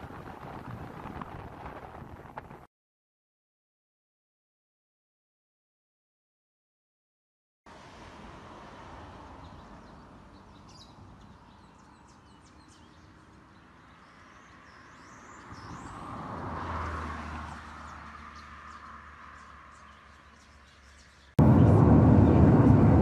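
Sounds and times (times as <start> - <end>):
vehicle passing: 7.7 - 11.5, 13.3 - 23.0
birds chirping and calling: 9.4 - 16.1, 17.6 - 21.4.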